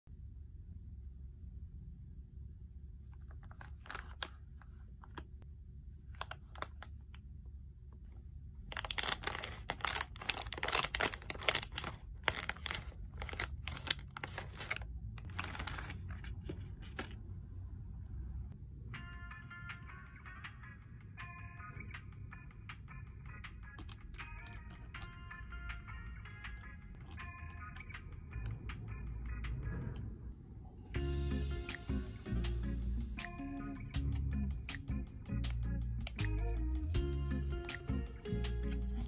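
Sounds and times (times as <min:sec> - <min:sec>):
plastic tray crinkling: 0:03.2 - 0:05.2, 0:08.7 - 0:17.2
plastic bag crinkling: 0:03.3 - 0:04.7, 0:08.7 - 0:17.2, 0:23.8 - 0:24.8
scissors cutting plastic: 0:08.7 - 0:16.0.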